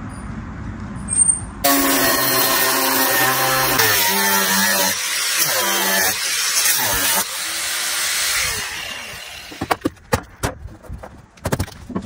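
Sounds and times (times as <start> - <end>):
angle grinder cutting metal: 1.6 - 9.7
knocks and clatters: 9.5 - 12.0.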